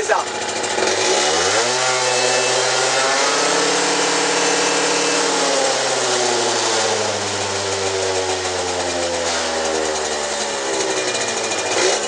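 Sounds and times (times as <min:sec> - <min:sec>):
scooter engine revving: 0:00.0 - 0:12.0.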